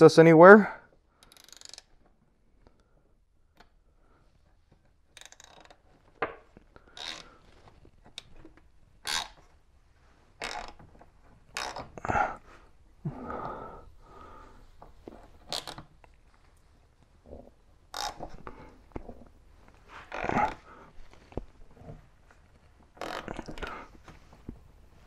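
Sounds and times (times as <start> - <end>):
ratchet metal clicks and scrapes: 1.2 - 2.1, 5.1 - 6.0, 6.9 - 8.4, 9.0 - 9.4, 10.4 - 10.8, 11.5 - 12.0, 17.9 - 18.2.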